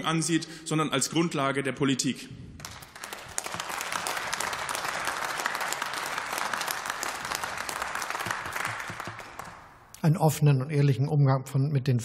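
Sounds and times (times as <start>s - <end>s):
crowd applauding: 2.6s - 9.8s.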